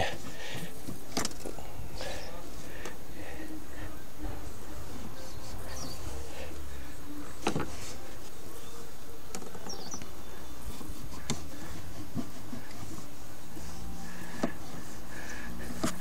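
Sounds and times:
cloth rubbing on plastic: 10.6s - 16.0s.

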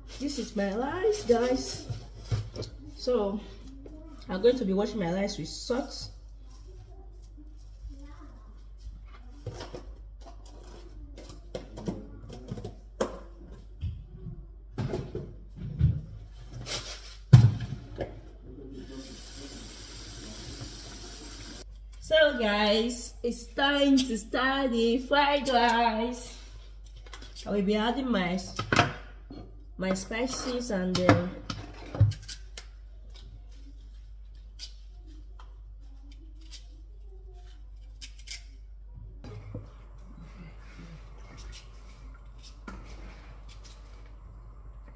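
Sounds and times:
tap water running into basin: 18.9s - 21.6s
kitchen utensils clicking and scraping: 29.9s - 33.2s
steady low hum: 39.1s - 44.9s.

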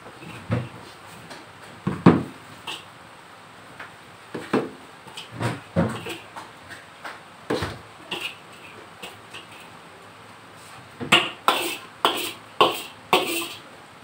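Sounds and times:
utensils clinking against dishes: 8.1s - 9.7s, 11.1s - 13.6s.

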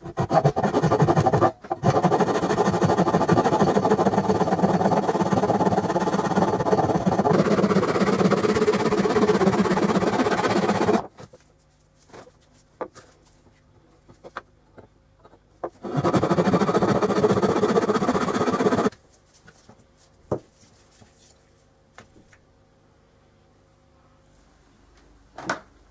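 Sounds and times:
hand saw cutting wood: 0.0s - 11.1s, 15.8s - 18.9s.

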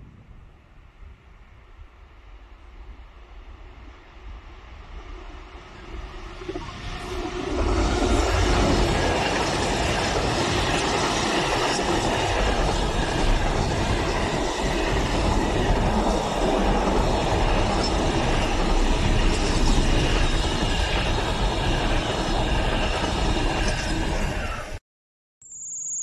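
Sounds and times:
diesel locomotive passing: 2.5s - 24.8s
freight wagons rumbling on rails: 5.8s - 24.8s.

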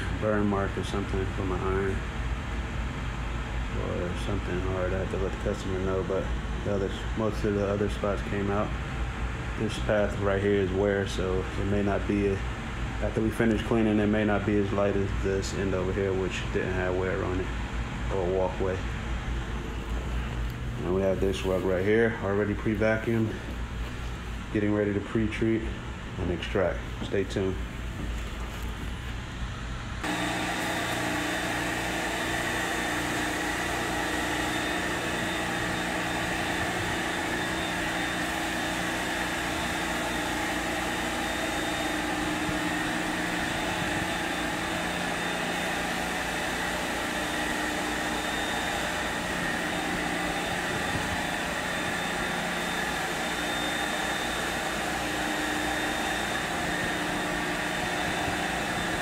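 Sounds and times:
carpet extractor vacuum whining: 30.0s - 59.0s.

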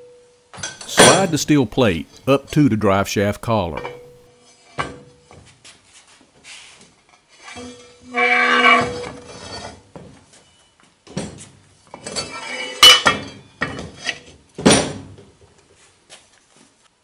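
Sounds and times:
metal clinks and scrapes: 11.9s - 14.3s.

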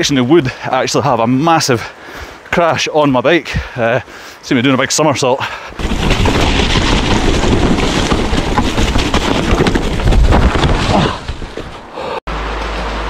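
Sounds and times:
bike crash: 5.8s - 11.9s
bike rattling and knocking: 5.8s - 11.9s
wind rushing over microphone: 5.8s - 11.9s.

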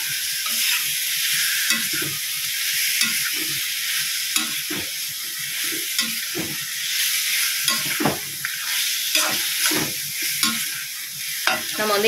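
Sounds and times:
liver sizzling in oil: 0.0s - 12.0s
utensil scraping a pan: 5.6s - 11.8s.

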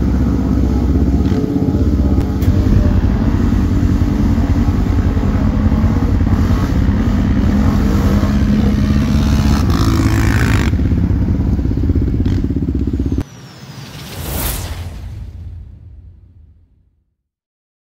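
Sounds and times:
atv engine running: 0.0s - 13.2s.

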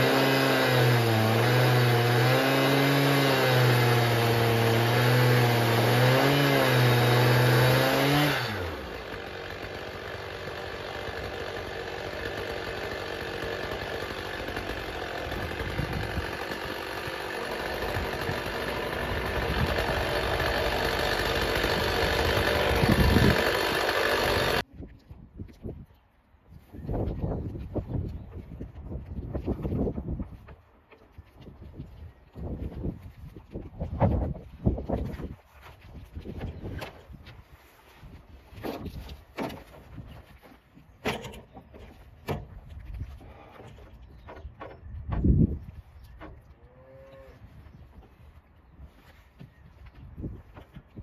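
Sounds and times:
chainsaw cutting: 0.0s - 24.6s.

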